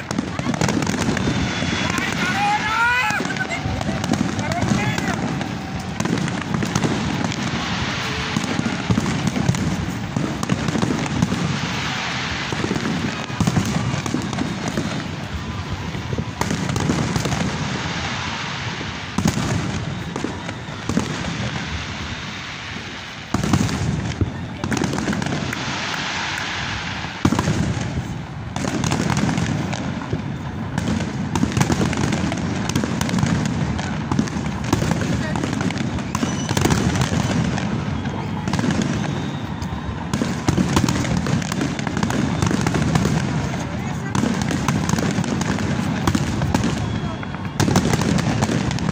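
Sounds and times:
fireworks bursting and crackling: 0.0 - 48.9
sharp firework bangs: 0.0 - 48.9.

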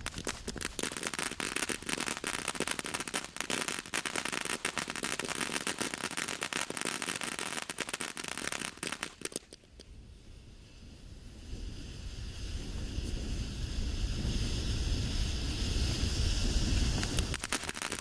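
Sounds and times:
firework rapid sharp cracks: 0.0 - 9.9, 16.4 - 18.0.

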